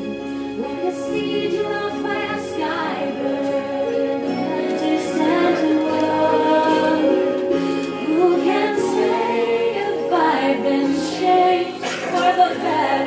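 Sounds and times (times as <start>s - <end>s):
group of young voices singing: 0.6s - 13.0s.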